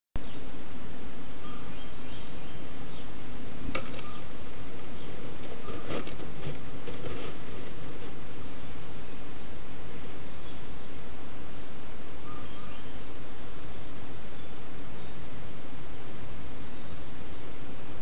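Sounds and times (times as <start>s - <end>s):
faint high chirping: 0.2s - 11.0s, 12.2s - 15.3s
microphone hiss: 0.2s - 18.0s
bird scratching in wooden box: 4.8s - 8.2s.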